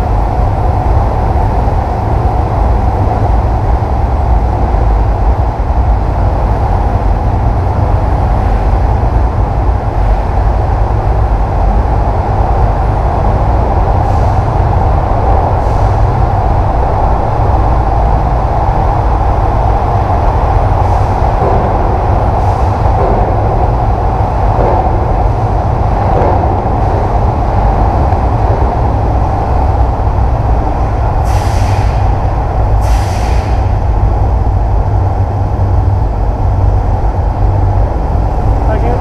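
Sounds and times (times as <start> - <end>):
vehicle drone: 0.0 - 39.0
wind buffeting microphone: 0.0 - 39.0
short sharp hisses: 32.8 - 33.6.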